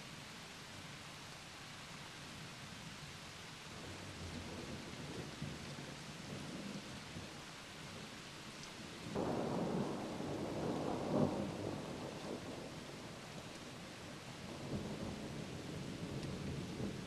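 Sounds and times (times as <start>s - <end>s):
steady rain: 0.0s - 17.0s
thunder rumbling: 9.1s - 13.8s.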